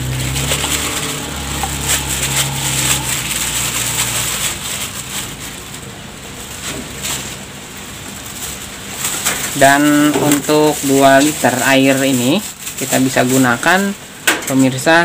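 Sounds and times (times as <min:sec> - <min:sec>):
low steady hum: 0:00.0 - 0:09.7
plastic bag crinkling: 0:00.0 - 0:14.0.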